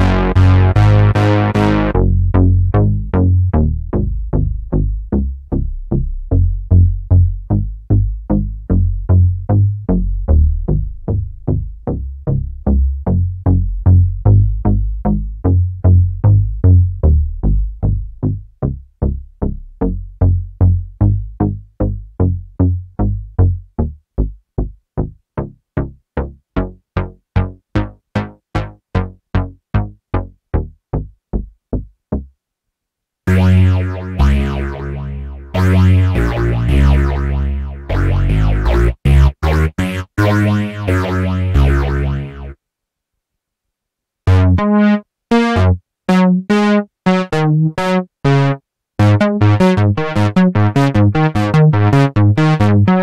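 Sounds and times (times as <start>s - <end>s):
synthesizer plucked note repeating: 0.0s - 5.2s, 33.3s - 42.6s, 44.3s - 53.0s
synthesizer playing short bright notes: 33.3s - 42.6s.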